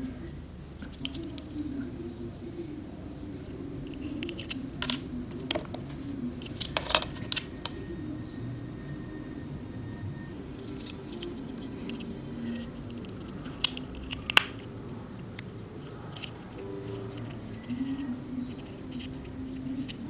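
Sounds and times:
soft low background sound: 0.0 - 20.0
plastic parts clicking and tapping: 3.8 - 7.8, 10.6 - 14.7.

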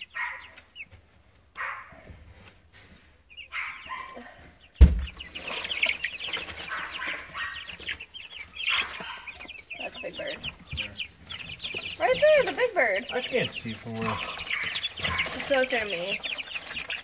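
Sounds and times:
birds rustling: 0.0 - 17.0
chicks peeping and chirping: 0.0 - 17.0
sharp thump: 4.8 - 5.2.

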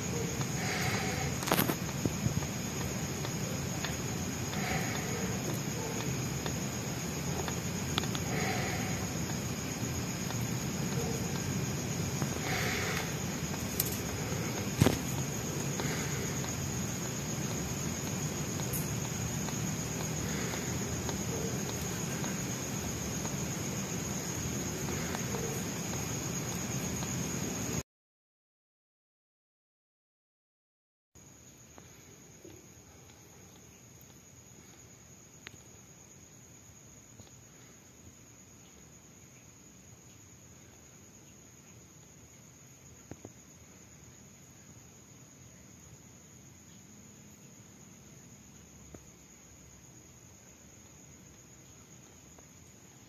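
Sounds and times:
background hiss: 0.0 - 27.8, 31.2 - 53.0
faint high-pitched whine: 0.0 - 27.8.

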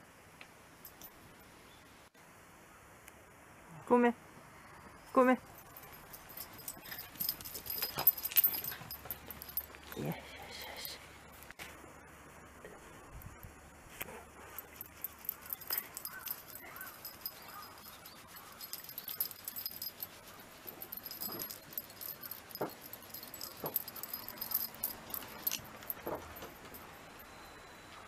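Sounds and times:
collar tags jingling: 5.4 - 11.5, 14.3 - 27.9.

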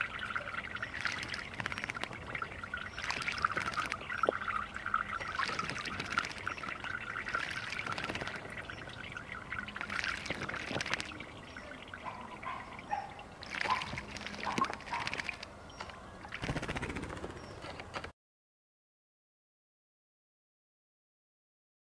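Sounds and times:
bird splashing in water: 0.0 - 17.5.

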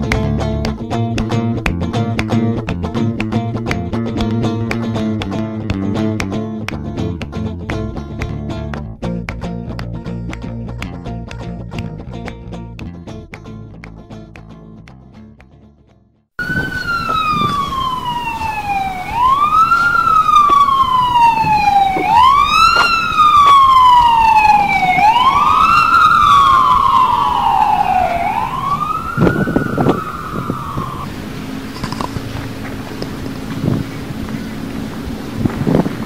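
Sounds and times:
emergency siren wailing: 16.4 - 35.2
steady background noise: 16.4 - 36.0.

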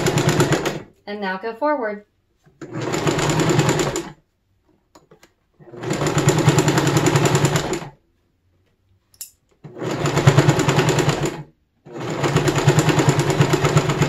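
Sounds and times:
sewing machine stitching: 0.0 - 0.9, 2.6 - 4.2, 5.6 - 8.0, 9.6 - 14.0.

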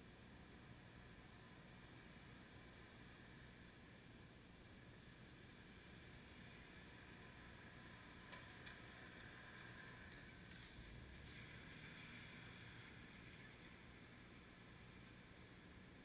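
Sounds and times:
faint street ambience: 0.0 - 16.0
faint ticks: 8.2 - 12.1.

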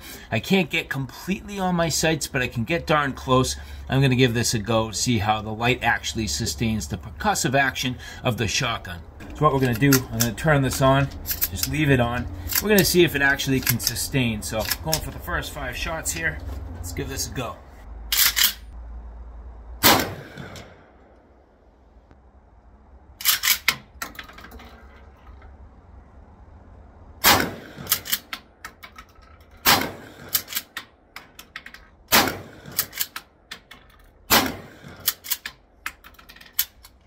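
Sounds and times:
shotgun shots: 19.8 - 20.8, 27.2 - 28.1, 29.6 - 30.5, 32.1 - 33.0, 34.3 - 35.2.

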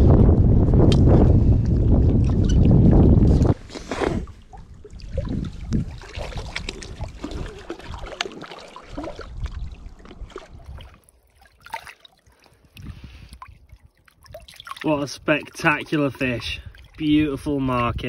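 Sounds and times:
wind rumbling on microphone: 0.0 - 11.0, 12.6 - 18.0
fish splashing in water: 4.2 - 15.5.

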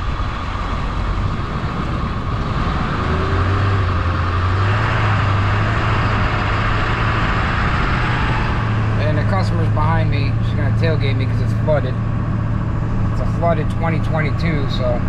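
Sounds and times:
road noise: 0.0 - 15.0
vehicle engine drone: 0.0 - 15.0.

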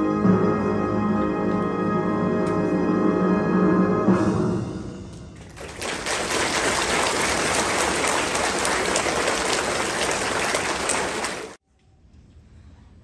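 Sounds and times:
audience applauding: 5.4 - 11.6.

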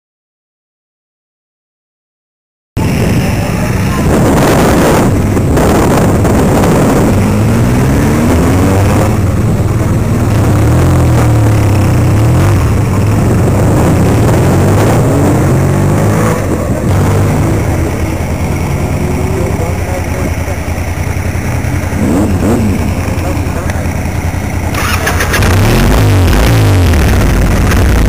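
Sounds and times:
wind noise on microphone: 2.8 - 17.5
motorcycle engine accelerating: 2.8 - 28.0.

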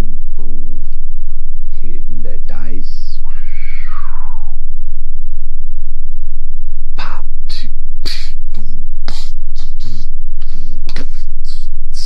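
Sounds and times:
low electrical hum: 0.0 - 12.0
breathy voice bursts: 3.2 - 4.6, 7.0 - 12.0.

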